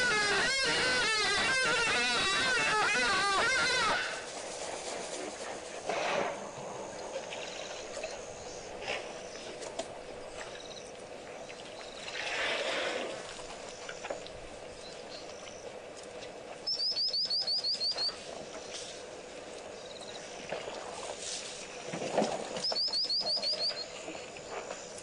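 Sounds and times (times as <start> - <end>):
descending whistled bird notes: 16.7 - 18.2, 22.6 - 23.9
high bird chirps: 16.7 - 18.2, 22.6 - 23.9.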